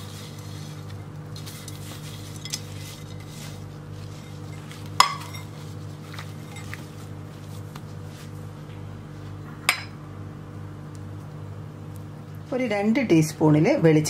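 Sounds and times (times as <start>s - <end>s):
steady low hum: 0.0s - 14.0s
crockery clinking against ceramic bowl: 4.4s - 5.5s.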